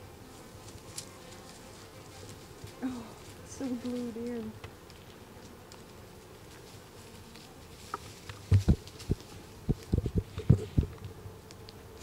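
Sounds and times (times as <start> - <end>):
honeybees buzzing: 0.0 - 12.0
low thumps and knocks on wood: 8.3 - 11.2.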